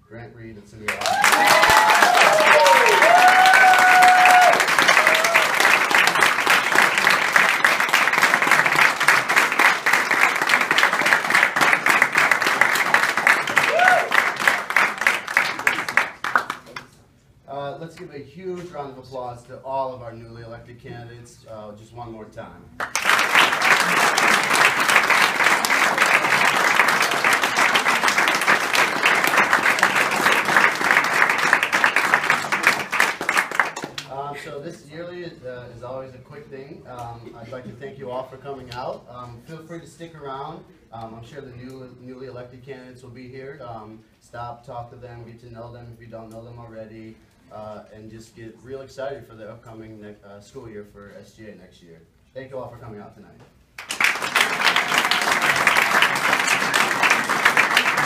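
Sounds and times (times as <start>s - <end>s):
audience cheer: 0.9s - 6.2s, 13.2s - 14.8s, 54.4s - 58.0s
audience clapping: 0.9s - 17.0s, 22.8s - 34.2s, 53.8s - 58.0s.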